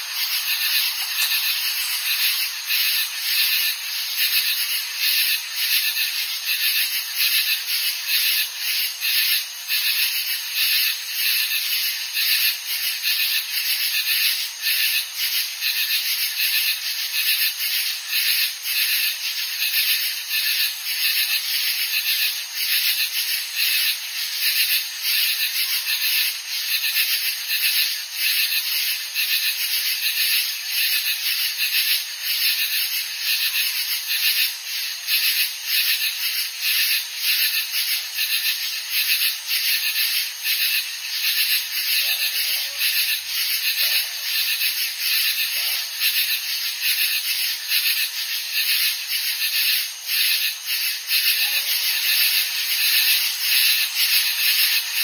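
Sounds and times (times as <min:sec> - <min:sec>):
katydids buzzing: 0:00.0 - 0:07.5, 0:34.1 - 0:55.0.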